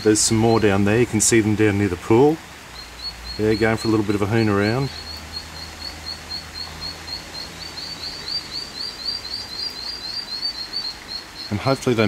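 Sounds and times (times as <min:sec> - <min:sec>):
ducklings peeping: 0:02.7 - 0:12.0.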